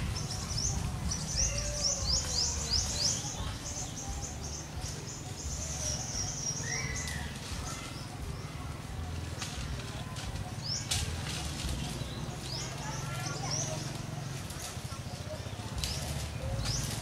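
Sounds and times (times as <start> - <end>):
bird singing: 0.0 - 17.0.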